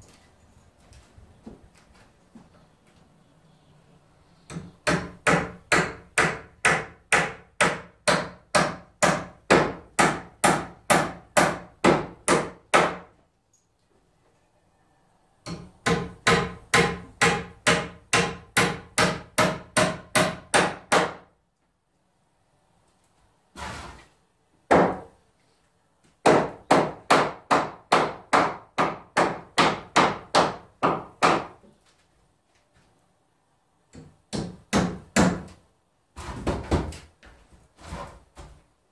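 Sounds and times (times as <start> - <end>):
hammer pounding on wood: 4.5 - 13.2, 15.4 - 21.3, 24.7 - 25.2, 26.2 - 31.6, 33.9 - 35.6, 36.2 - 37.0.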